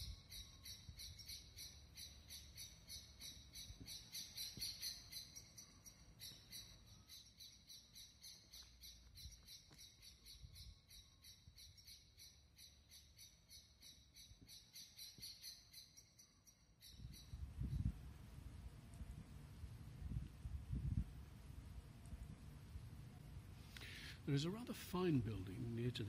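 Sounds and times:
high repeated chirping: 0.0 - 17.4.

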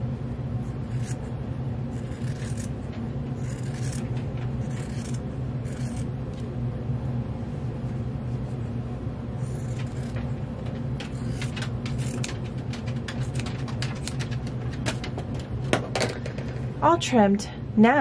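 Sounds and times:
steady low hum: 0.0 - 18.0
scissors snipping fabric: 0.8 - 1.3, 2.0 - 2.8, 3.4 - 6.4, 9.5 - 10.2, 11.1 - 12.4.

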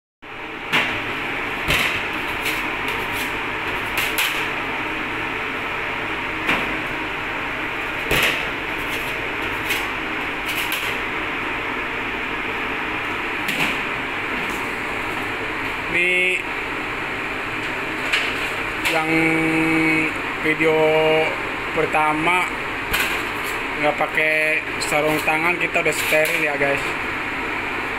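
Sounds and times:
machine hum: 0.2 - 27.9.

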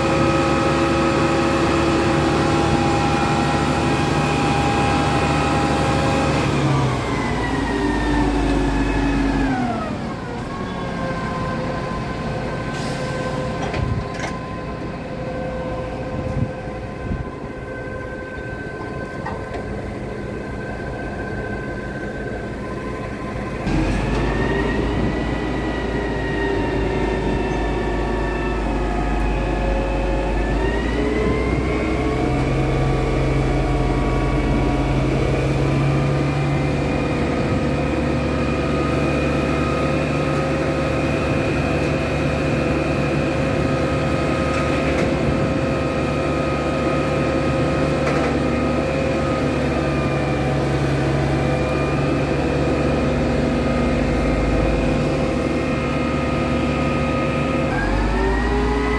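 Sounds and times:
truck engine at raised revs: 0.0 - 17.1, 18.5 - 58.9
hydraulic whine: 18.2 - 58.9.

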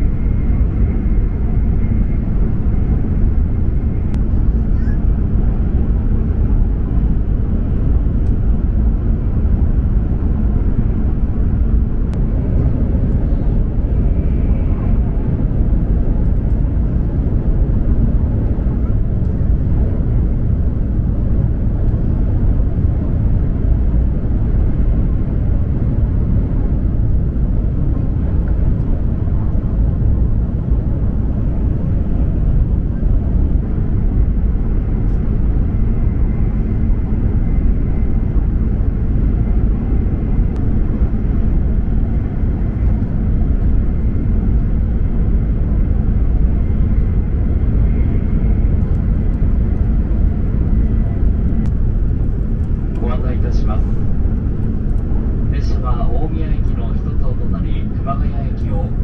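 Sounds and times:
faint high whine: 0.0 - 7.2
train cabin rumble: 0.0 - 59.0.

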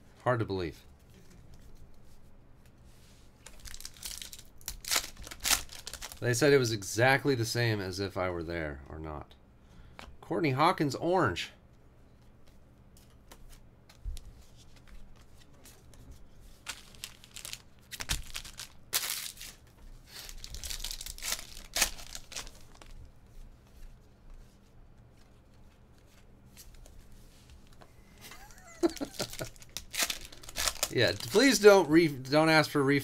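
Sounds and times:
foil wrapper crinkling and tearing: 3.4 - 6.3, 16.6 - 23.0, 28.8 - 31.7.

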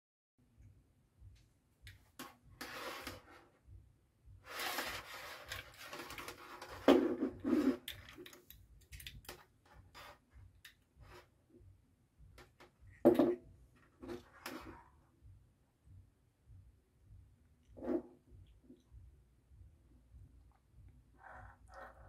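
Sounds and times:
scraping and rustling: 2.2 - 3.6, 4.4 - 10.4
wires and plastic parts handled: 4.4 - 11.3.

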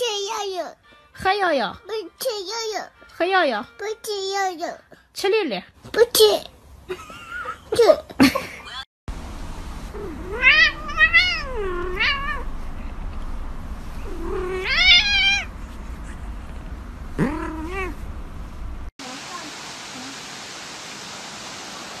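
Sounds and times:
steady low hum: 9.1 - 18.9
cat meowing: 10.0 - 12.5, 14.0 - 15.5, 17.2 - 18.0.

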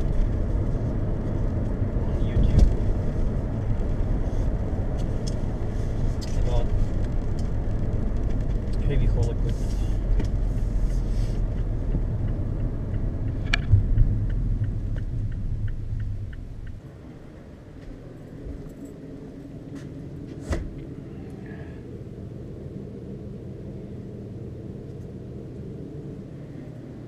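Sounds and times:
engine and road rumble: 0.0 - 27.0
steady room hum: 0.0 - 27.0
evenly spaced ticks: 10.3 - 16.8.

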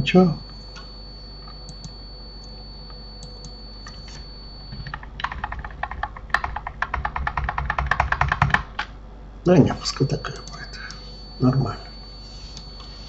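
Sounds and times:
keyboard typing: 4.7 - 8.9.

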